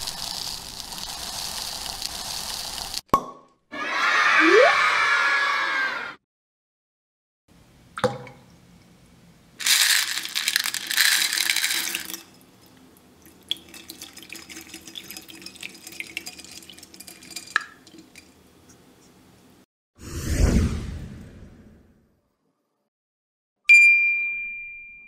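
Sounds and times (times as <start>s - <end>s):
water splashing into a glass bowl: 13.3s - 18.0s.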